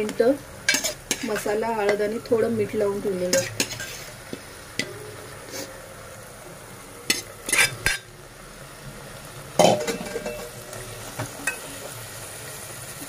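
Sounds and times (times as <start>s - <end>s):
chicken sizzling in a pot: 0.0s - 13.0s
steel ladle scraping pot: 0.7s - 1.5s, 3.4s - 4.1s, 7.1s - 8.0s.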